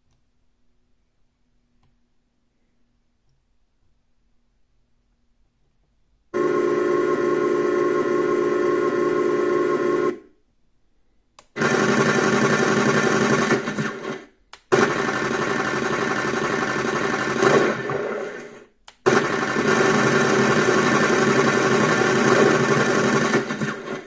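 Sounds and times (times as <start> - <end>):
click: 0.0 - 0.3, 1.8 - 2.0, 3.2 - 3.9, 11.3 - 11.6, 14.5 - 14.7, 18.8 - 19.0.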